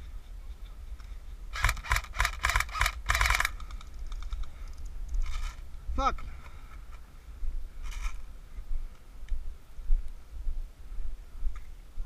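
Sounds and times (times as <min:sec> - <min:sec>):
airsoft rifle firing clicky shots: 0:01.5 - 0:03.8.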